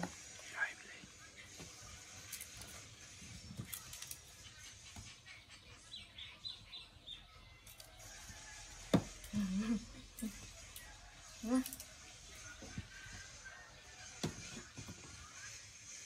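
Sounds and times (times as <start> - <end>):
low voice-like hum: 9.3 - 10.4.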